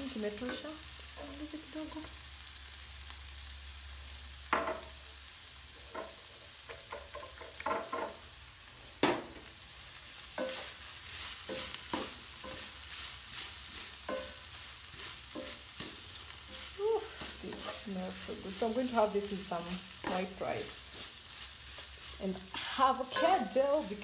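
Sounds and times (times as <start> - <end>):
food sizzling in a pan: 0.0 - 24.0
utensil knocking on pan: 4.5 - 4.9, 6.7 - 8.2, 14.1 - 14.4, 23.0 - 23.6
utensil scraping pan: 10.4 - 24.0.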